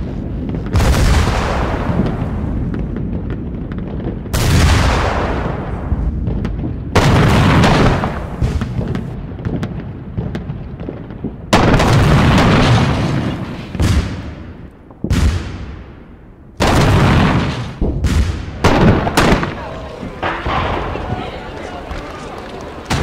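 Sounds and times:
artillery booms: 0.0 - 22.1, 22.8 - 23.0.

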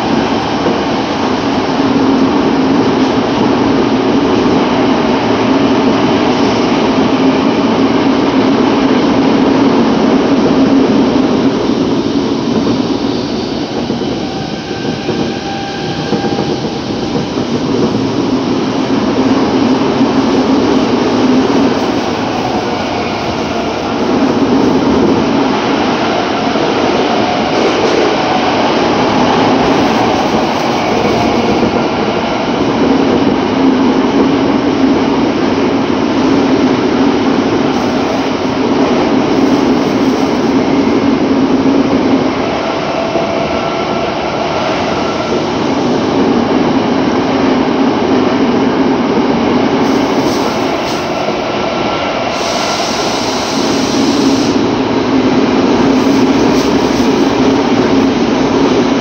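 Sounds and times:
wheels rumbling on rail: 0.0 - 59.0.

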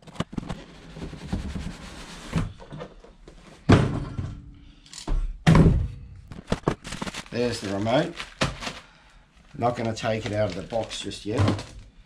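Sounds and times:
loud thump: 5.4 - 6.0
packaging rustling and sliding: 6.4 - 11.8.

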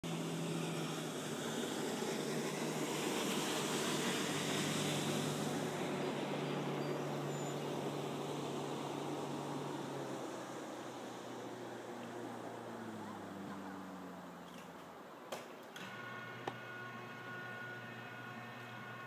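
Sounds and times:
low motor humming: 0.0 - 14.8, 15.8 - 19.0
wind and water hiss: 0.0 - 15.9.

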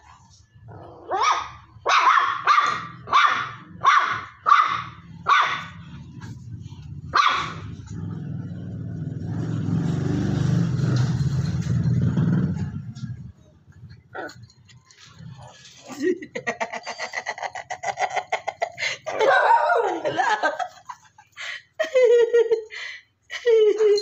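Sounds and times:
small dog barking: 1.1 - 5.8, 7.1 - 7.8
dog growling: 13.9 - 19.1.

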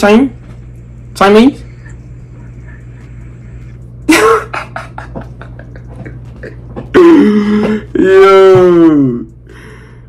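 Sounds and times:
steady low hum: 0.0 - 10.0
person making mouth noises: 6.0 - 9.4.

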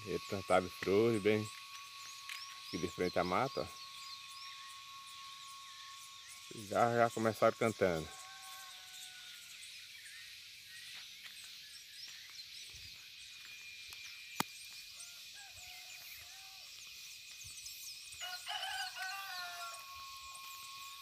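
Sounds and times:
birds chirping: 0.0 - 21.0
rooster crowing: 7.4 - 9.6, 15.0 - 16.8, 18.2 - 21.0.

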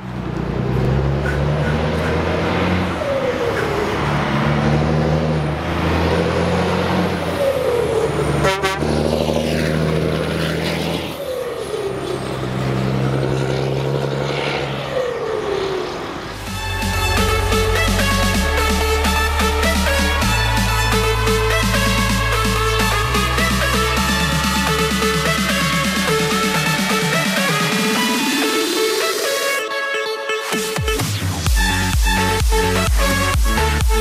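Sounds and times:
truck diesel engine driving past: 0.0 - 26.8.

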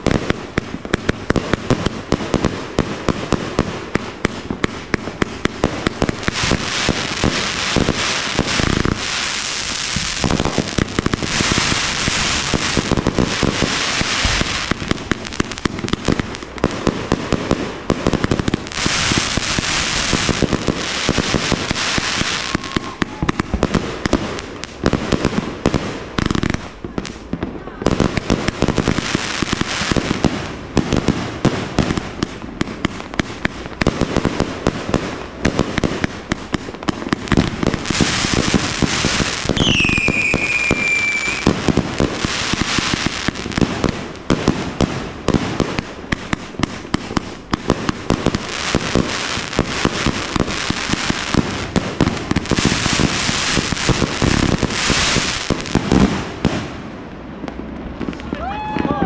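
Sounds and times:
fireworks launching and bursting: 0.0 - 59.0
whistling firework: 4.0 - 27.2, 35.6 - 56.8, 58.0 - 59.0.

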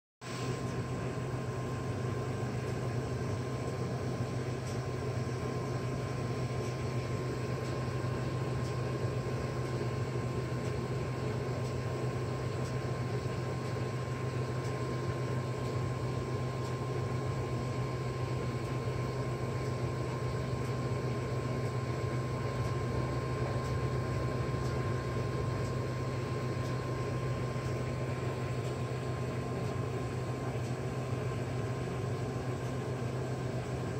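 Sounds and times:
machine hum: 0.2 - 33.9.

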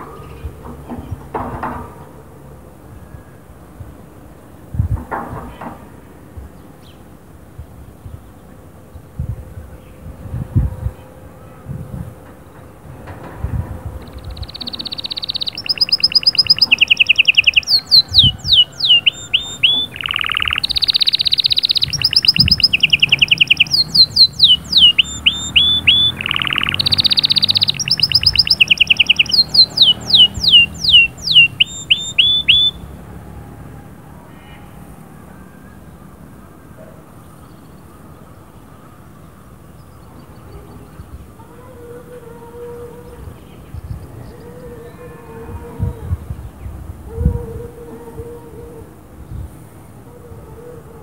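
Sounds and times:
canary singing: 14.0 - 33.3.

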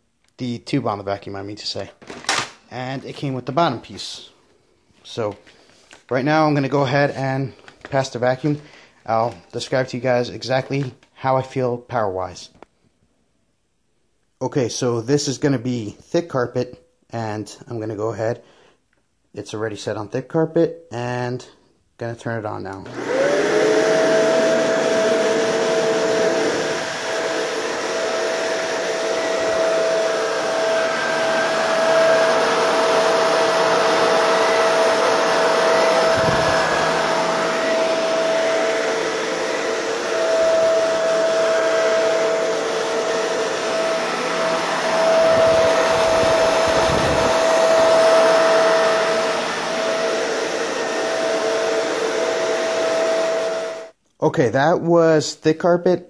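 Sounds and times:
vacuum cleaner running on rug: 22.9 - 53.9.

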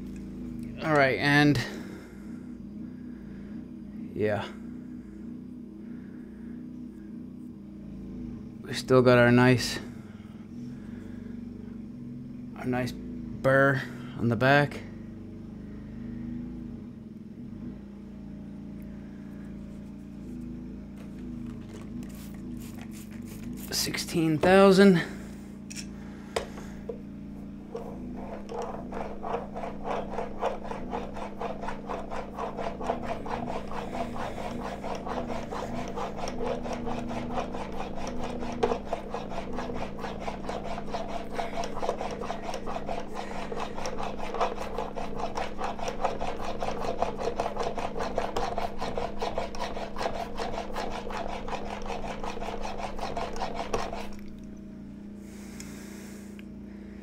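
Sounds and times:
plane blade rubbing on whetstone: 19.7 - 25.2, 27.6 - 54.4.

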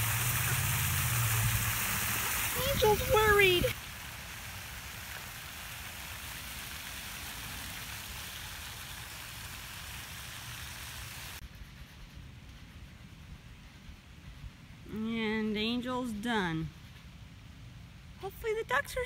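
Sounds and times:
running water hiss: 0.0 - 11.4.

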